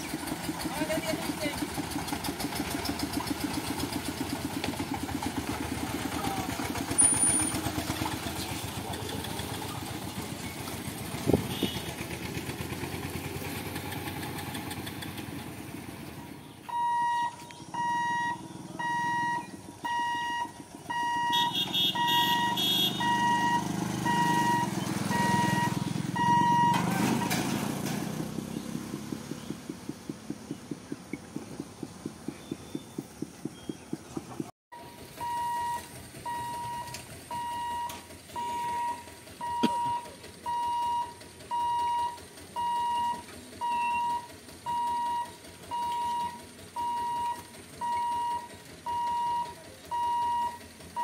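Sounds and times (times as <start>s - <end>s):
motorcycle engine running: 0.0s - 16.7s, 17.3s - 51.0s
crossing warning beeps: 16.6s - 27.4s, 34.8s - 51.0s
sharp knocks: 27.4s - 34.5s.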